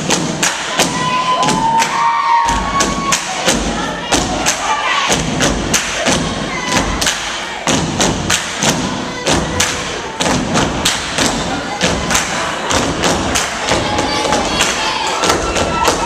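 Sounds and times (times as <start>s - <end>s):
audience whooping and cheering: 0.7s - 3.5s.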